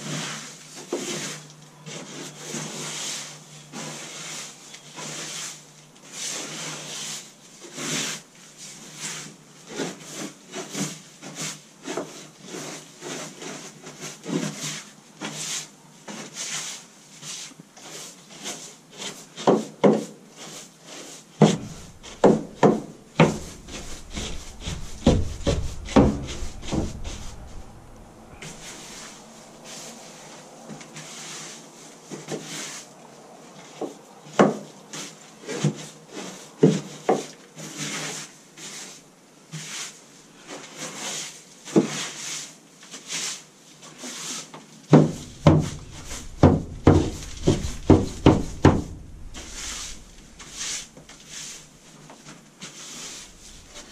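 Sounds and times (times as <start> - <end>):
tool scraping wooden floor: 20.9 - 29.9, 44.9 - 51.7.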